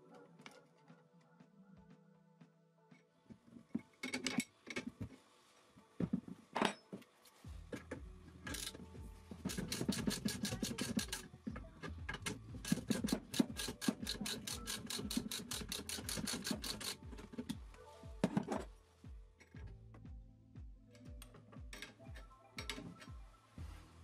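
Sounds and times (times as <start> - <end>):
metal parts scraping and knocking: 3.8 - 5.0, 7.7 - 11.3, 12.1 - 17.6
low steady hum: 7.4 - 12.9
ratchet clicking: 9.5 - 11.3, 12.2 - 17.0.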